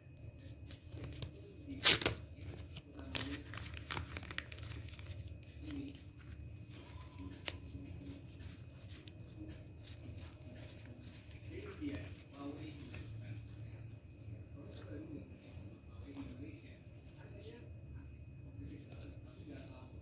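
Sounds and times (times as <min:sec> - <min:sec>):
paper labels rustling: 0:00.4 - 0:13.6
plastic packaging crinkling: 0:01.0 - 0:09.2.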